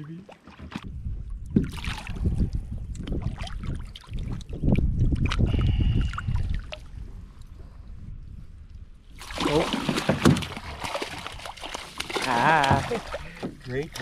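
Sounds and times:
knocks and sloshes against boat: 0:00.1 - 0:02.3, 0:09.2 - 0:14.0
low rumble on microphone: 0:00.8 - 0:09.2
fish splashing at surface: 0:09.2 - 0:13.4.

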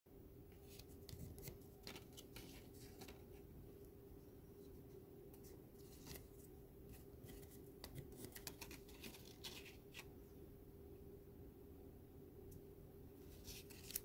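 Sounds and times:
faint steady hum: 0:00.1 - 0:14.0
paper strips rustling and sliding: 0:00.5 - 0:03.4, 0:05.4 - 0:10.1, 0:13.2 - 0:14.0.

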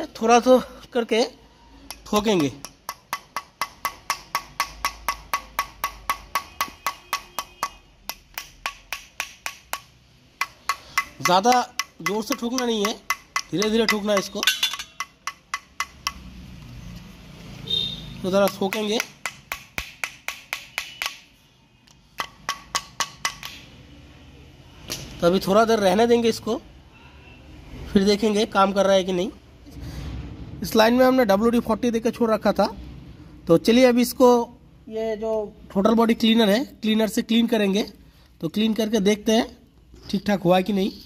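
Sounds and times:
small hammer tapping metal: 0:01.8 - 0:16.3, 0:18.3 - 0:21.3, 0:22.1 - 0:23.7.

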